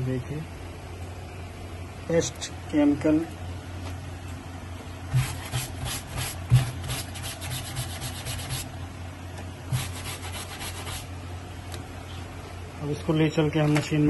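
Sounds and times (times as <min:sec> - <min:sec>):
scrub brush scrubbing wet cloth: 0:05.1 - 0:08.7, 0:09.7 - 0:11.1.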